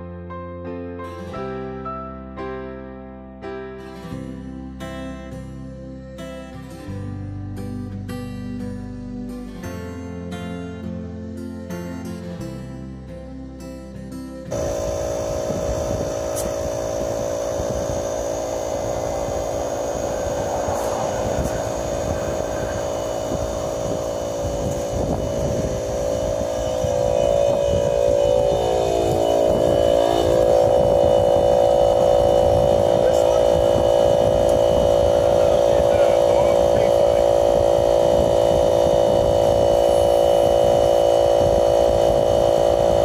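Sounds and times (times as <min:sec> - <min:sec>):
air compressor humming: 0:14.5 - 0:43.0.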